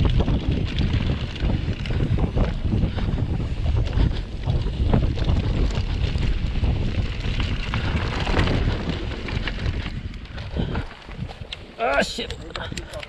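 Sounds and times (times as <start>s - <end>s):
tyres rumbling over dirt: 0.0s - 12.8s
bike rattling: 0.0s - 13.0s
wind buffeting microphone: 0.0s - 13.0s.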